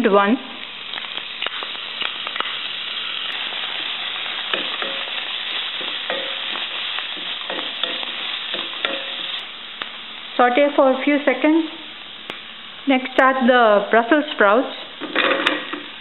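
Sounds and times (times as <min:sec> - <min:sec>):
oil sizzling in a frying pan: 0:00.0 - 0:16.0.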